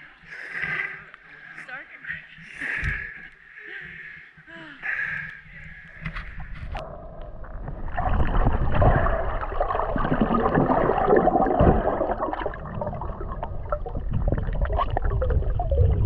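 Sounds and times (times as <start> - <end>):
water sloshing and gurgling: 5.6 - 16.0
low rumble: 6.2 - 16.0.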